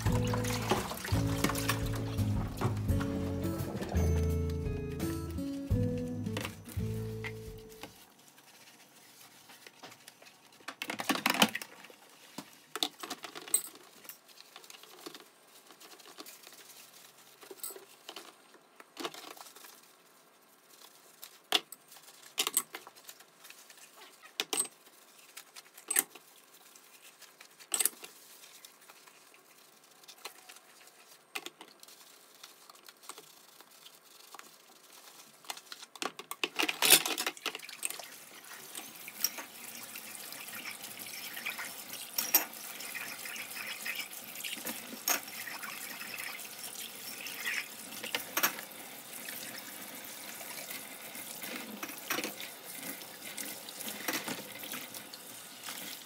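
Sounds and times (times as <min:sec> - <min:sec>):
sponge scrubbing dishes: 0:00.0 - 0:04.2, 0:19.2 - 0:35.5, 0:37.4 - 0:48.3.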